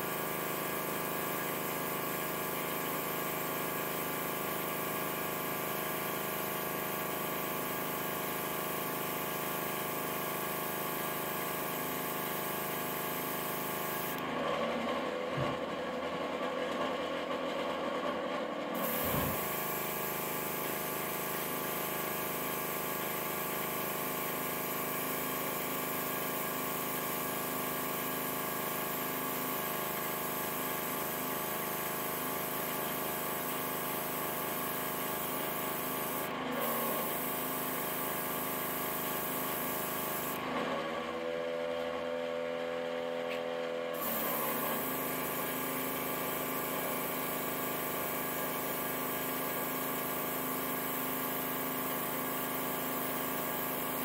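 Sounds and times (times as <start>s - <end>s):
air compressor humming: 0.0s - 14.4s, 18.7s - 54.0s
airbrush spray hissing: 18.8s - 21.8s, 33.8s - 40.4s, 44.0s - 47.2s.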